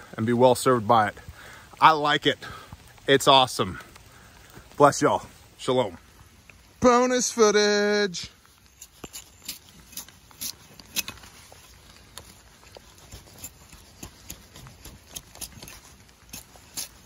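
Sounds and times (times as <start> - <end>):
axe scraping bark off log: 8.6 - 17.0.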